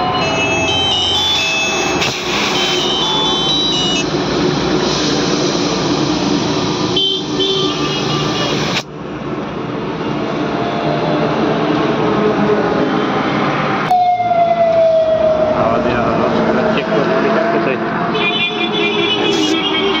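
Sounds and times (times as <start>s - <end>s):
air hissing into tyre: 1.4s - 3.3s, 4.6s - 8.9s
air compressor running: 1.9s - 8.8s.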